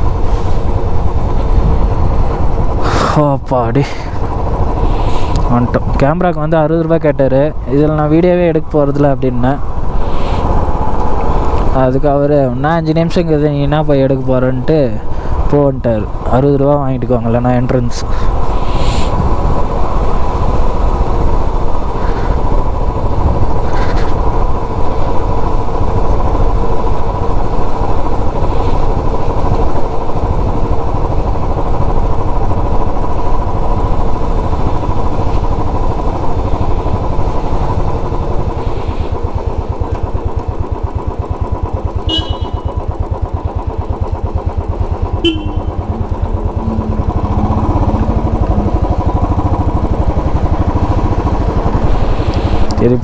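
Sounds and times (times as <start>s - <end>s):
motorcycle engine thumping: 39.2s - 52.4s.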